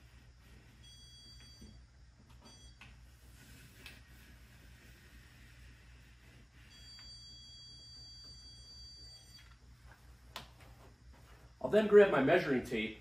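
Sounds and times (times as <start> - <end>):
stud finder high beep: 6.6 - 9.6.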